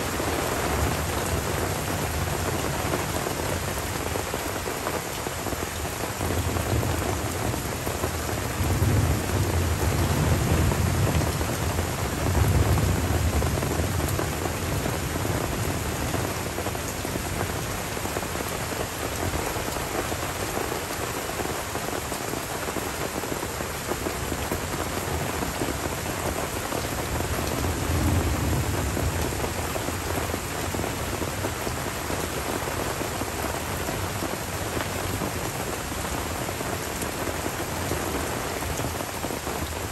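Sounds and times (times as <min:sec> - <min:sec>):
rain falling on forest: 0:00.0 - 0:39.9
thunder rumbling: 0:08.0 - 0:16.6, 0:27.1 - 0:31.3.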